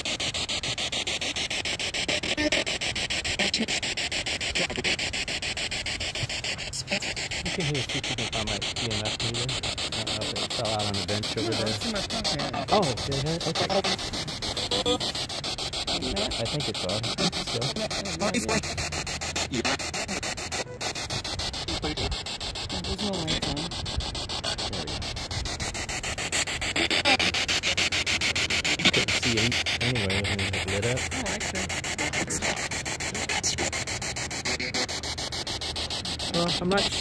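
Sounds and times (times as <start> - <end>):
pulsing radio static: 0.0 - 37.0
faint radio voice fragments: 6.7 - 15.2, 15.8 - 18.8, 19.4 - 25.4, 28.7 - 35.0.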